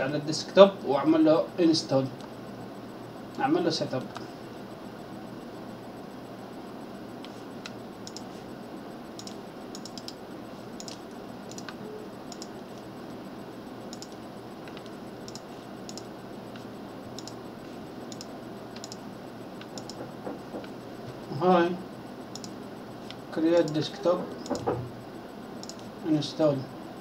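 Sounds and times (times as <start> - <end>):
steady background hiss: 0.0 - 27.0.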